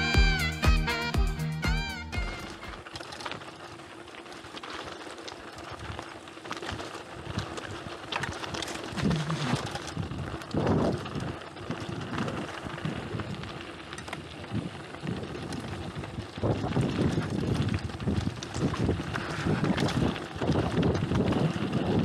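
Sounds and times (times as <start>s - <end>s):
bike rattling: 0.0s - 0.7s, 2.2s - 22.0s
bike tyres crunching over gravel: 2.2s - 22.0s
wind buffeting microphone: 6.8s - 22.0s.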